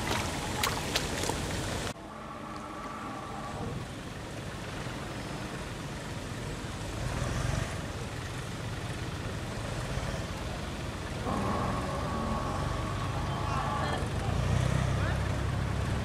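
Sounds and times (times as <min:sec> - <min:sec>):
water churning: 0:00.0 - 0:02.0, 0:11.2 - 0:15.2
tractor engine running: 0:00.0 - 0:16.0.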